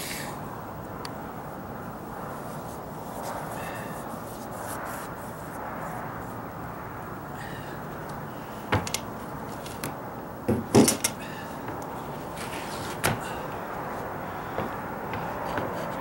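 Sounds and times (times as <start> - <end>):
steady background hiss: 0.0 - 16.0
knocks and clunks of gear on deck: 8.7 - 13.4, 14.5 - 16.0.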